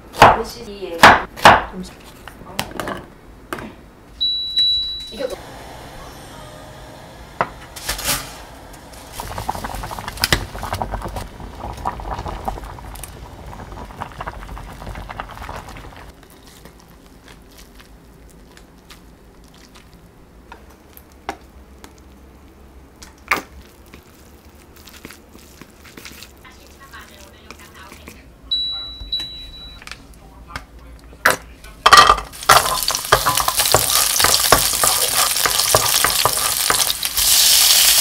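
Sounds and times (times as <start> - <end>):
water bubbling in a saucepan: 9.1 - 16.2.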